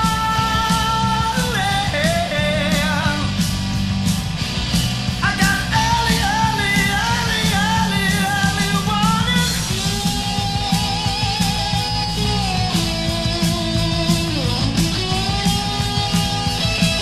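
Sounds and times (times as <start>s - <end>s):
bass: 0.0s - 17.0s
drums: 0.0s - 17.0s.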